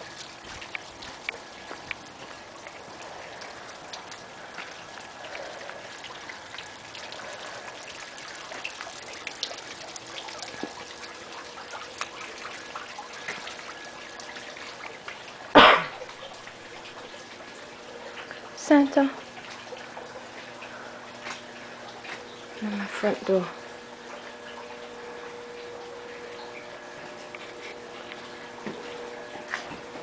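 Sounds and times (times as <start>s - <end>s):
light rain falling: 0.0s - 27.4s
drips close by: 0.0s - 30.0s.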